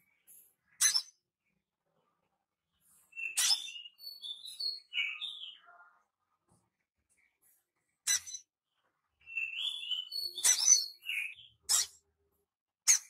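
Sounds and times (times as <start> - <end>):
bird chirping: 0.0 - 1.6, 2.7 - 6.1, 7.1 - 12.2.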